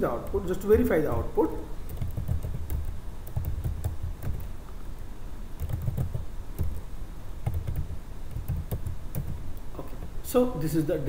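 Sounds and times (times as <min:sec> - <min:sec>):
keyboard typing clicks: 0:01.9 - 0:04.6, 0:05.6 - 0:09.4.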